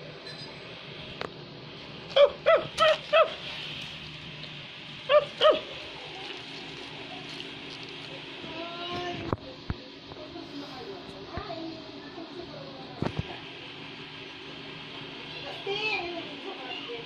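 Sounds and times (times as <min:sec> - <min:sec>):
high yapping calls: 0:02.1 - 0:03.5.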